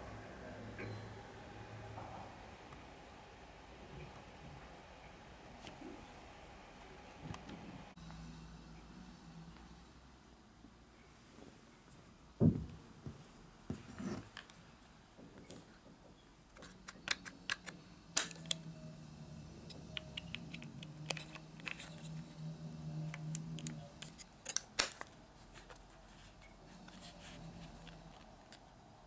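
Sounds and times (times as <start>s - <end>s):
low hum: 16.9s - 24.3s.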